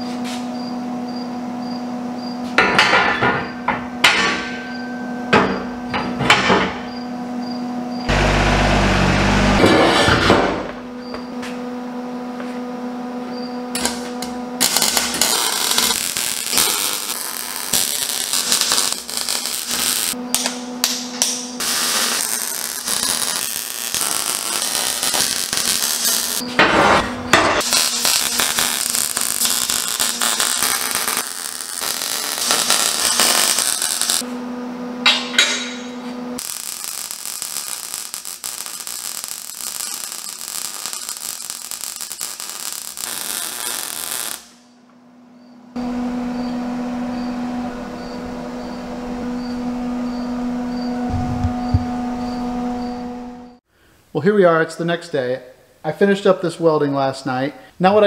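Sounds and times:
welder humming: 2.6s - 44.8s, 45.7s - 53.6s
welder arc crackling: 13.8s - 26.4s, 27.6s - 34.3s, 36.4s - 44.6s.

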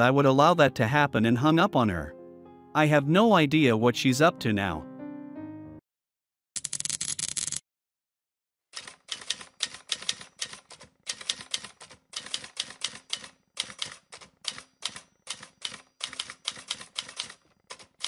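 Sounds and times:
rapid keyboard key clicks: 8.8s - 18.0s.

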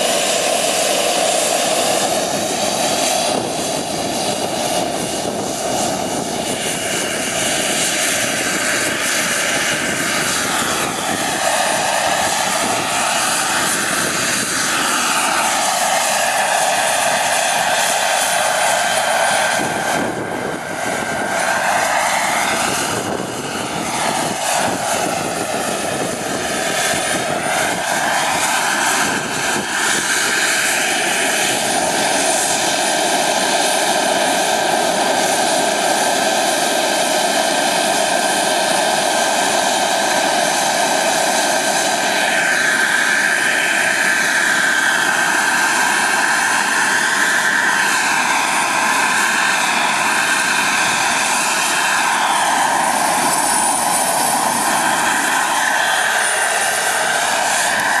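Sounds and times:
model helicopter turbine whine: 0.0s - 58.0s.

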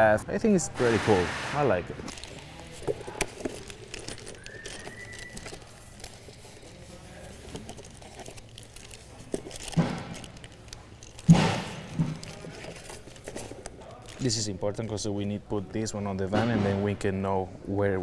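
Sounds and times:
plastic bags crinkling: 2.0s - 14.8s.

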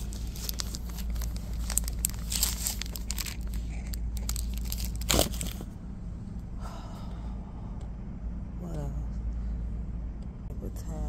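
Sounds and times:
plastic packaging crinkling: 0.0s - 5.7s.

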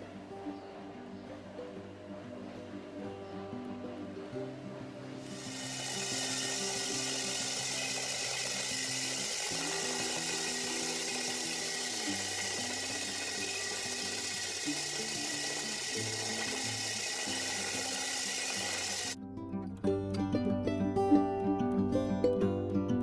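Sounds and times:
music of held low notes: 0.0s - 23.0s
drill grinding through wall: 5.2s - 19.2s.

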